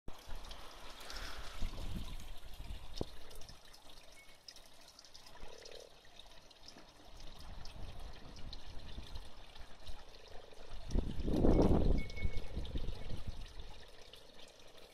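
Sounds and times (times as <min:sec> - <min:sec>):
pond water trickling and splashing: 0:00.1 - 0:14.9.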